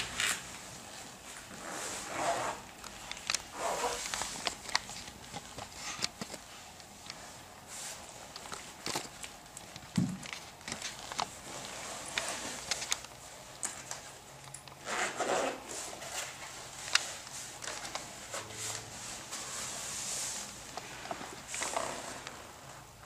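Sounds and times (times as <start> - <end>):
leather rubbing and rustling: 3.5 - 6.0.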